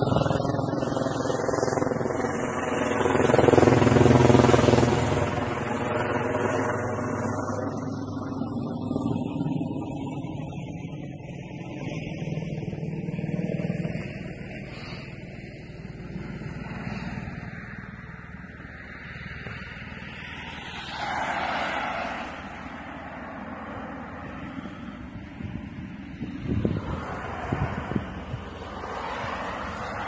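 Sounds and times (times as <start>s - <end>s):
street traffic rumble: 0.0s - 30.0s
vehicle passing: 16.2s - 30.0s.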